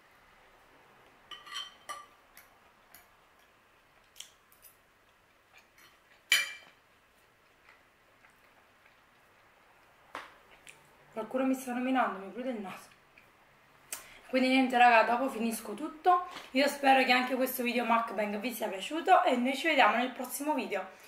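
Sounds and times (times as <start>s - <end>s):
fork clinking on ceramic plate: 1.3s - 2.2s, 6.3s - 6.8s.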